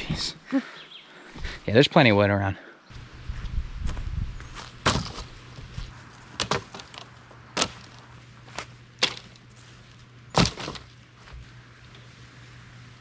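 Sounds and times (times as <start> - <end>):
dry sticks snapping: 6.1 - 11.0.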